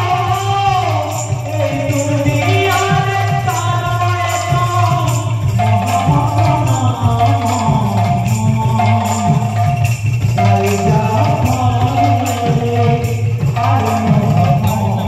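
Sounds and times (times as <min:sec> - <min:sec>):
drum with pitch-bending strokes: 0:00.0 - 0:15.0
hand cymbals clashing: 0:00.0 - 0:15.0.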